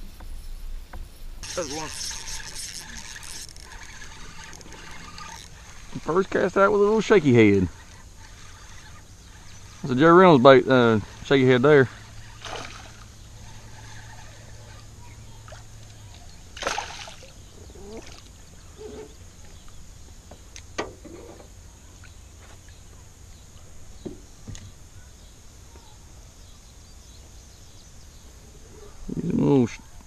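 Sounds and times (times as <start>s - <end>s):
fish splashing at water surface: 12.2s - 14.3s, 16.5s - 17.4s.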